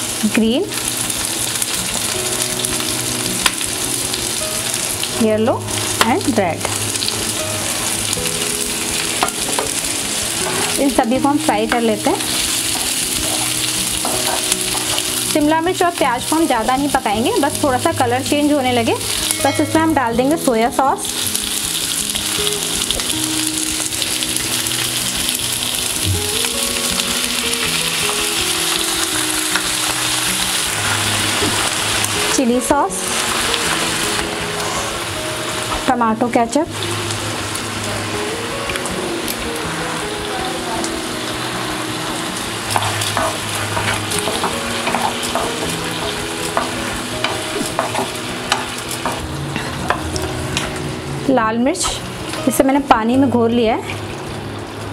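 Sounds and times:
vegetables sizzling in oil: 0.0 - 54.9
utensil scraping pan: 42.7 - 49.2.

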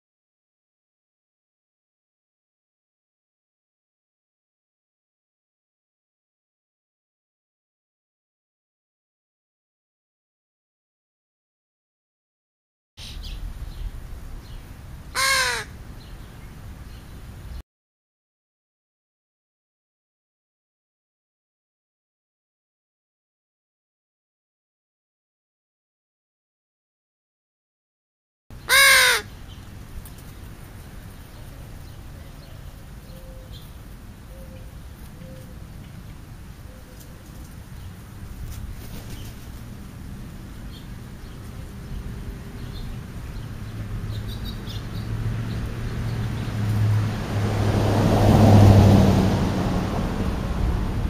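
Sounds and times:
crow cawing: 15.2 - 15.7, 28.7 - 29.3
vehicle passing: 38.0 - 51.0.

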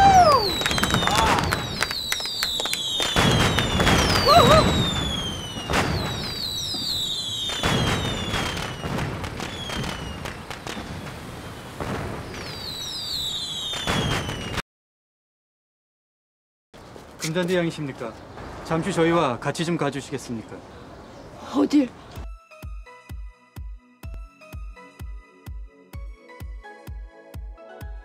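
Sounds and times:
firework whistles: 0.0 - 14.6
fireworks bangs and crackling pops: 0.0 - 14.6.

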